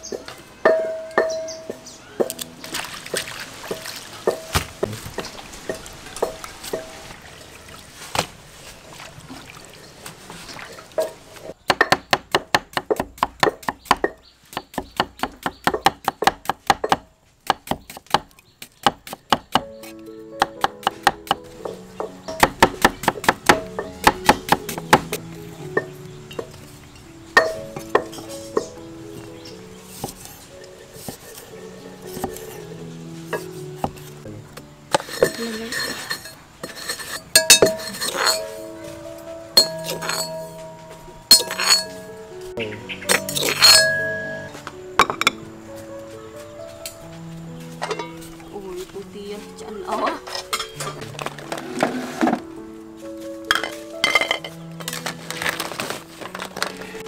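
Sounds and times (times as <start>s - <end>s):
soft background music: 0.0s - 8.8s, 9.8s - 57.0s
hands sloshing greens in water: 2.6s - 5.8s, 6.5s - 11.4s
cleaver chopping on wooden board: 11.7s - 21.5s, 22.4s - 25.2s.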